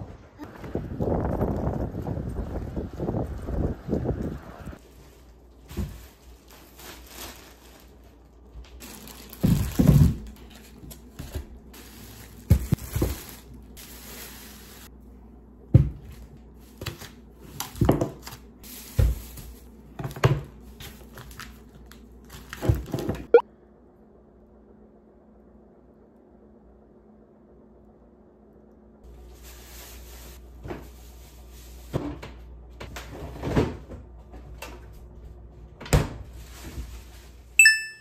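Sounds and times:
plastic bags rustling: 0:04.8 - 0:15.0, 0:16.0 - 0:23.3, 0:29.1 - 0:31.9.

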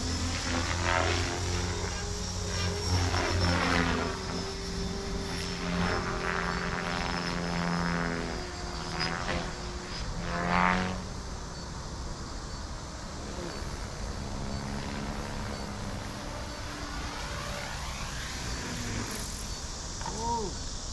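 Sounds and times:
model helicopter rotor buzz: 0:00.0 - 0:20.9.

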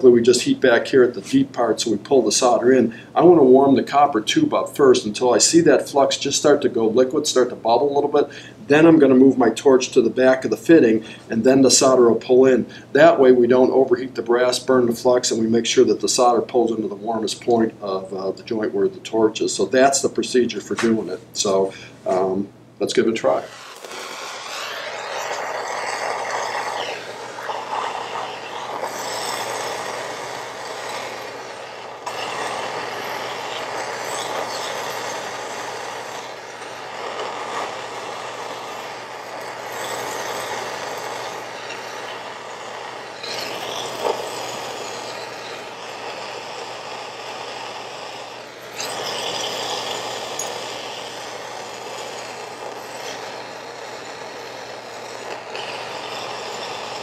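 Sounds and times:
torch flame hissing: 0:00.0 - 0:06.6, 0:23.2 - 0:57.0.

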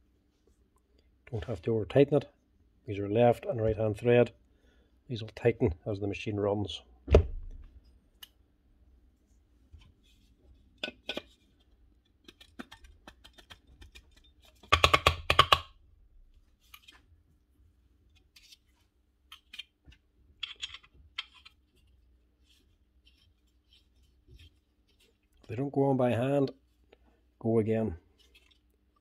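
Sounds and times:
tool parts clicking and knocking: 0:12.2 - 0:15.7, 0:20.4 - 0:21.6.

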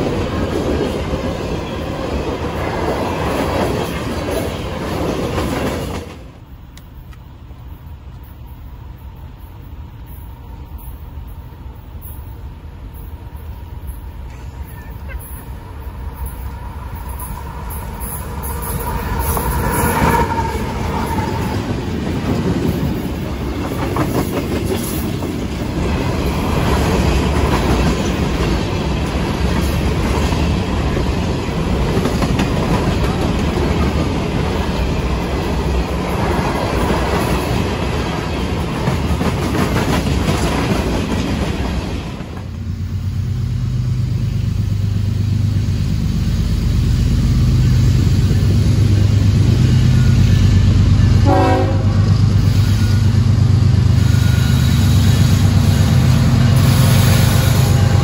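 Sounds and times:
distant diesel locomotives droning: 0:00.0 - 0:58.0
train wheels clacking over joints: 0:21.2 - 0:35.0.

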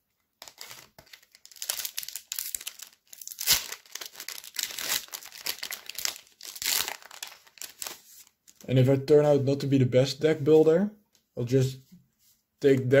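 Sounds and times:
foil wrapper crinkling and tearing: 0:00.4 - 0:08.6.

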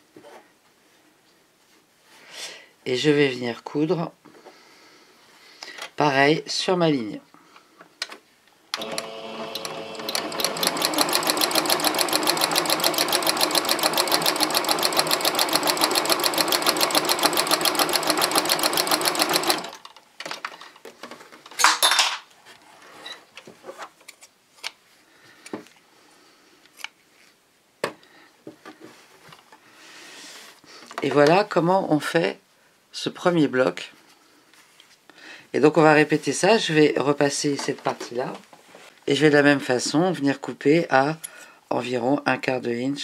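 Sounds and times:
sewing machine stitching: 0:08.8 - 0:19.9.

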